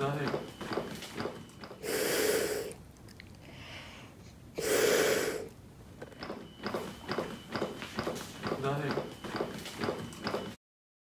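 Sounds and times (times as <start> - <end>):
breaths blown through a valve: 1.8 - 2.8.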